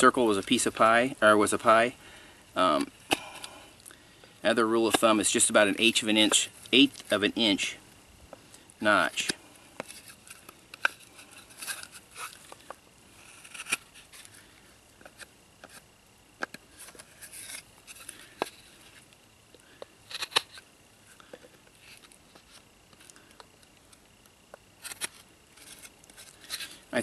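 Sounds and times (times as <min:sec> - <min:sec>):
knife scraping wood: 0:09.8 - 0:14.4, 0:15.0 - 0:15.9, 0:16.5 - 0:19.0, 0:20.1 - 0:20.6, 0:24.8 - 0:26.8.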